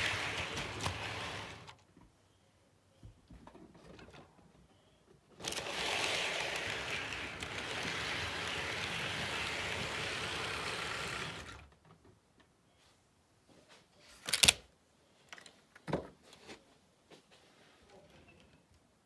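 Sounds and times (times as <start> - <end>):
model train whirring rattle: 5.4 - 11.7.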